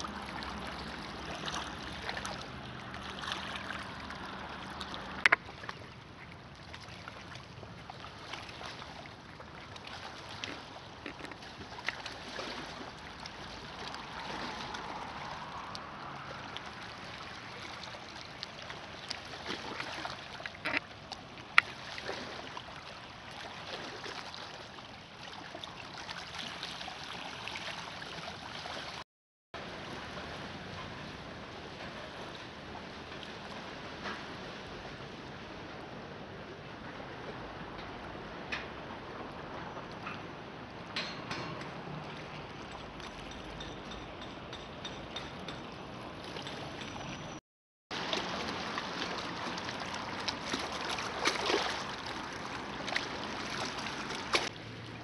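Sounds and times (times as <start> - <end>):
waves lapping on pebbly shore: 0.0 - 6.0, 6.7 - 29.0, 47.9 - 55.0.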